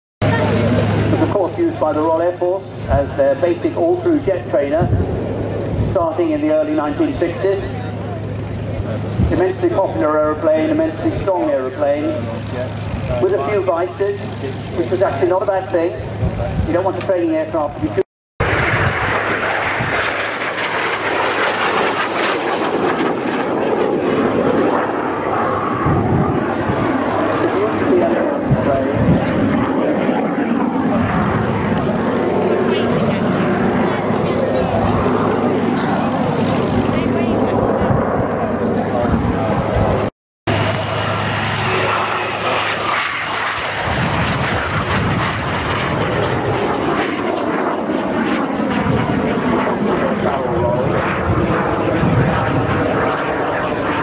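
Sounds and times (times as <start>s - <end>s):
aircraft flying overhead: 0.2s - 54.0s.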